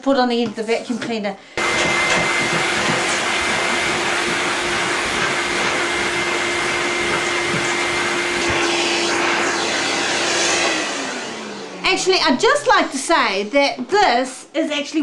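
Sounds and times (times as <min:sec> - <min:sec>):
vacuum motor winding down: 0:01.6 - 0:13.1
vacuum cleaner running: 0:01.6 - 0:14.4.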